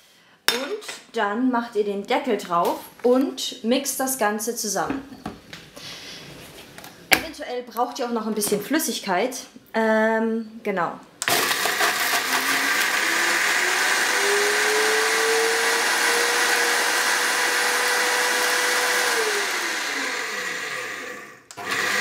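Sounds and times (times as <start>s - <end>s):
blender motor whine: 11.2s - 22.0s.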